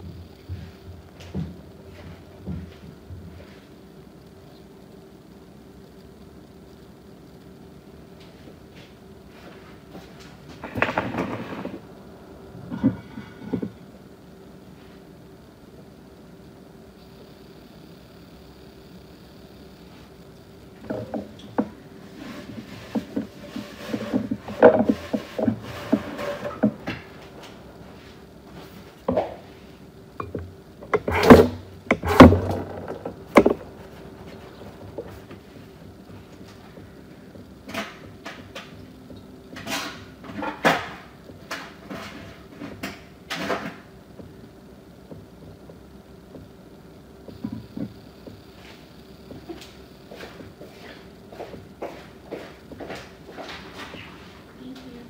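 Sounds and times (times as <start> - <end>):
faint steady hum: 0.0 - 55.0
objects knocking and clattering: 10.5 - 11.8, 12.6 - 13.8, 20.8 - 27.6, 30.2 - 38.8, 47.3 - 48.4.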